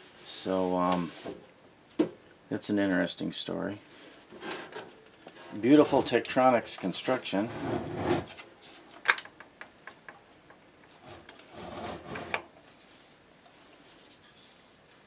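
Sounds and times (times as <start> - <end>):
metal scraping rub: 7.4 - 8.4.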